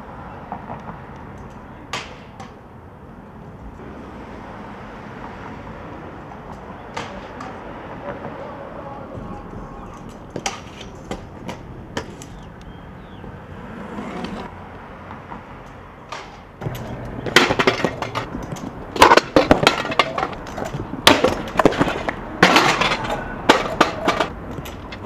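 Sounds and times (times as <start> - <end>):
scooter wheels rolling over paving: 6.4 - 14.6, 16.1 - 25.0
scooter deck clacking on ground: 9.2 - 12.5, 16.0 - 25.0
scooter crashing down: 16.2 - 24.9.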